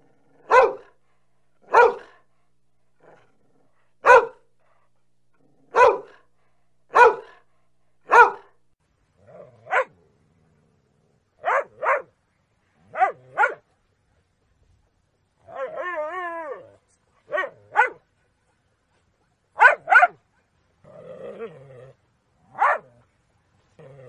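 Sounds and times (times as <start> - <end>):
dog barking: 0.4 - 1.0, 1.6 - 2.3, 4.0 - 4.5, 5.7 - 6.3, 6.9 - 8.6, 9.7 - 9.9, 11.4 - 12.1, 12.9 - 13.6, 17.3 - 18.0, 19.6 - 20.2, 22.5 - 23.0.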